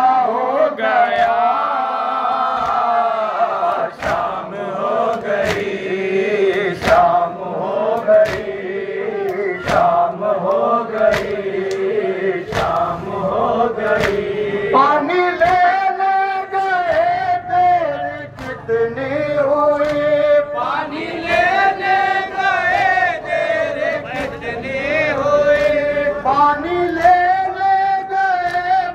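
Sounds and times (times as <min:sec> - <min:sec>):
crowd chanting in unison: 0:00.0 - 0:28.9
held sung lines: 0:00.0 - 0:28.9
chest-beating slaps: 0:02.5 - 0:03.0, 0:03.7 - 0:04.4, 0:05.1 - 0:05.8, 0:06.4 - 0:07.2, 0:07.9 - 0:08.6, 0:09.2 - 0:12.9, 0:13.8 - 0:14.4.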